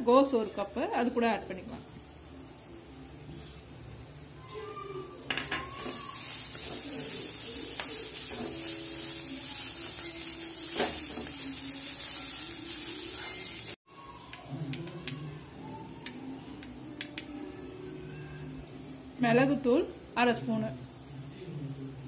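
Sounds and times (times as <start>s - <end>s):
vegetables sizzling in hot oil: 0.0s - 13.8s.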